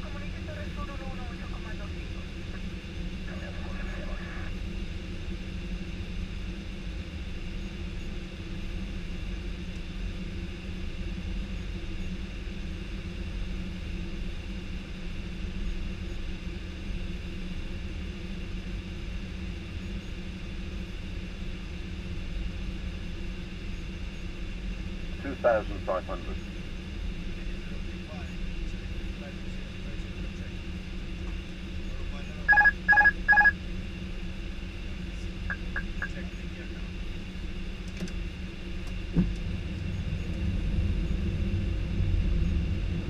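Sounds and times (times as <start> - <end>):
engine hum: 32.3 - 43.0.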